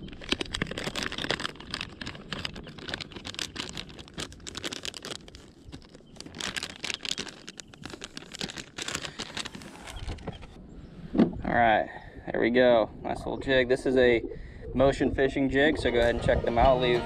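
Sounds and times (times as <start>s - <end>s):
plastic bag crinkling: 0.0s - 10.5s
rustling plastic: 0.0s - 10.6s.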